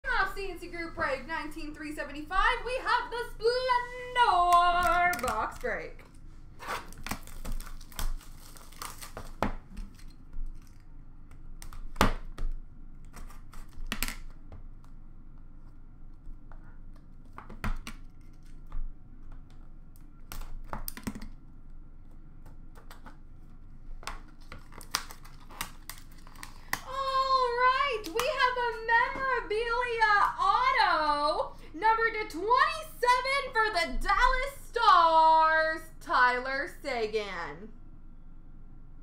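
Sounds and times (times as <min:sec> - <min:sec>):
plastic wrap crinkling and tearing: 0:04.7 - 0:10.9, 0:22.8 - 0:29.4.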